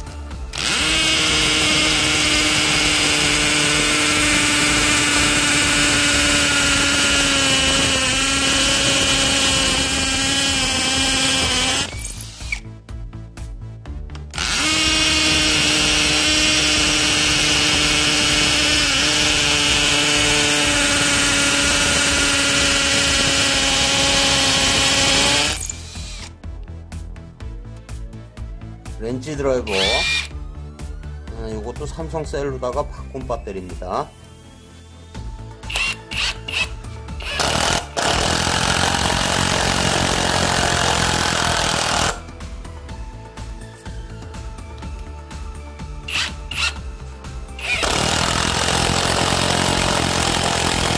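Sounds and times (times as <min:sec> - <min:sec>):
hammer drill boring into concrete: 0:00.5 - 0:12.6, 0:14.4 - 0:26.3, 0:29.7 - 0:30.3, 0:35.7 - 0:42.3, 0:46.1 - 0:46.8, 0:47.5 - 0:50.9.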